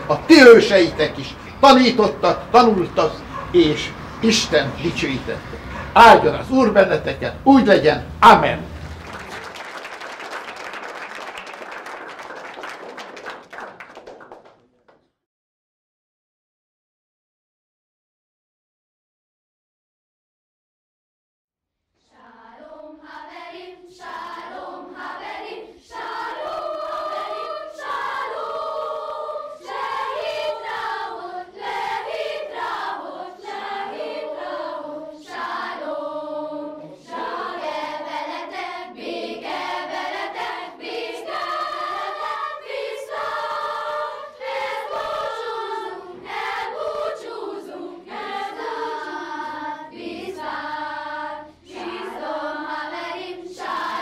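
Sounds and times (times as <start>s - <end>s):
children's choir singing: 0.0s - 7.3s, 22.0s - 54.0s.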